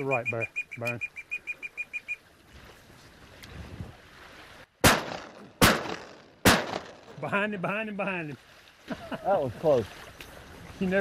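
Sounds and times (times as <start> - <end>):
water lapping: 0.0 - 5.8, 6.5 - 11.0
shotgun shots: 4.8 - 7.1.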